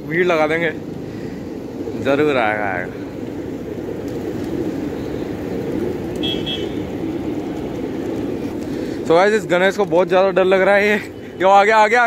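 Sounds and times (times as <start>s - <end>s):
road traffic: 0.0s - 12.0s
vehicle horn double toot: 6.2s - 6.8s.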